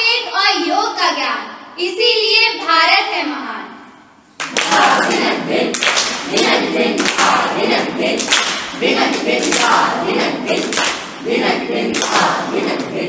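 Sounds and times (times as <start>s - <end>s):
rhythmic hand claps: 4.4s - 13.0s
young voices singing in unison: 4.5s - 13.0s.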